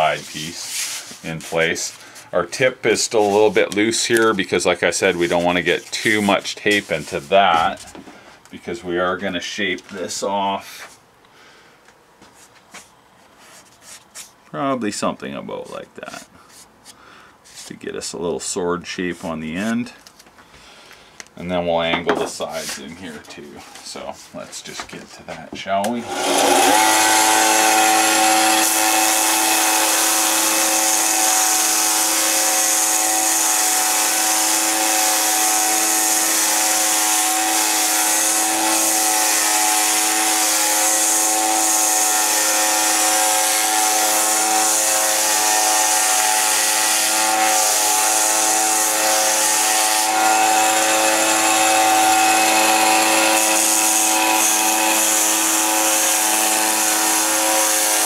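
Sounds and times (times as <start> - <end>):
sanding belt hiss: 0.0 - 2.0
bench sander running: 26.0 - 58.0.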